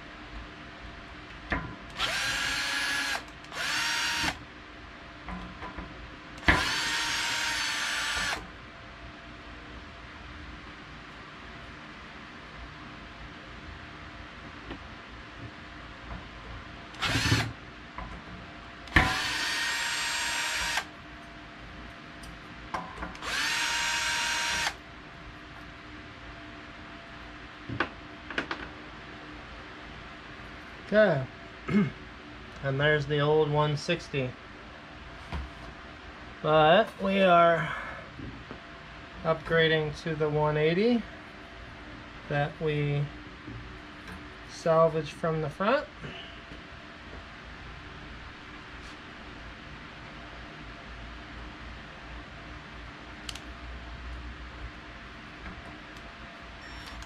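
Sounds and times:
power drill whining: 2.0 - 4.4, 6.4 - 8.4, 17.0 - 17.5, 18.9 - 20.9, 23.2 - 24.8.

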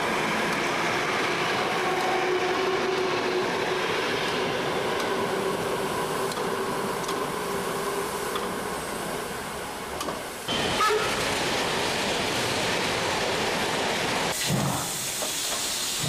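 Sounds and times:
train rumbling on rails: 0.0 - 16.0.

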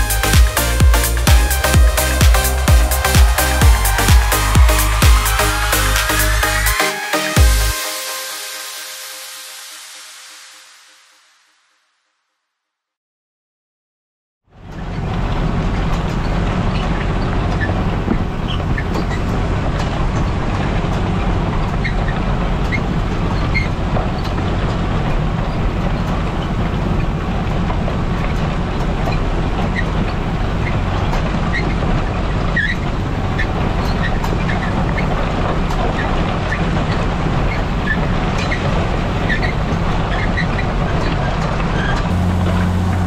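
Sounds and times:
tractor engine rumbling: 0.0 - 7.9, 14.5 - 43.0.

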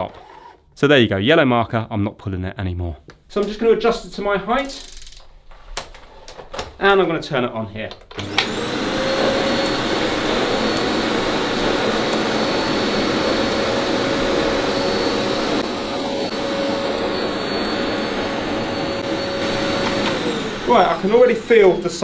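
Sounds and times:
vacuum cleaner motor whining: 0.0 - 0.6, 8.2 - 22.0.

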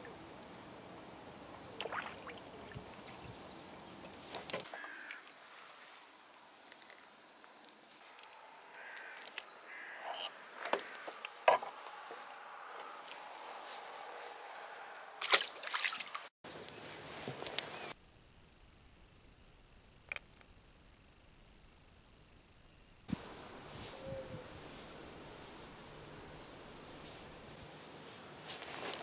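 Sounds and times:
short water splash: 1.8 - 2.5, 15.2 - 16.3.

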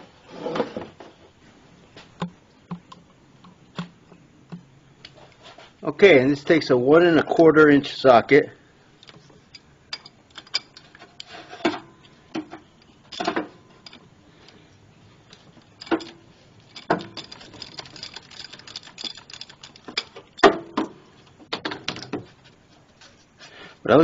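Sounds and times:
metallic clicks and clanks: 9.0 - 14.6, 15.2 - 22.3
quick ratchet clicks: 15.8 - 20.5.

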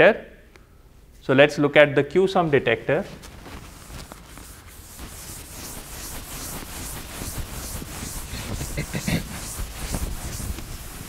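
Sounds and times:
eraser swishing on blackboard: 3.6 - 11.0.

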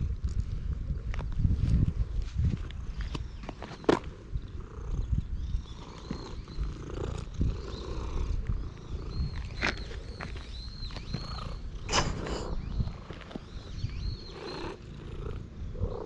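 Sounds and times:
cat purring: 4.2 - 10.2, 11.1 - 16.0.

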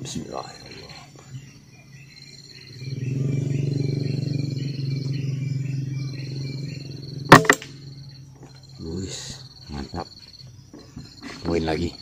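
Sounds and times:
high insect trill: 0.0 - 12.0
low steady hum: 0.9 - 8.8.

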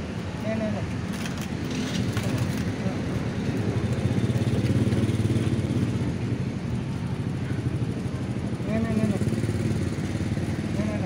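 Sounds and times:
motorcycle engine idling: 3.5 - 11.0.

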